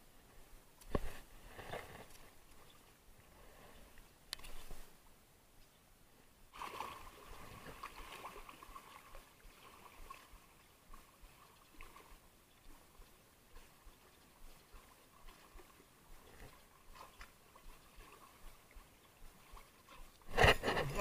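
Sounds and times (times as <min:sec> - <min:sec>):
small waves sloshing on concrete: 0:06.5 - 0:20.8.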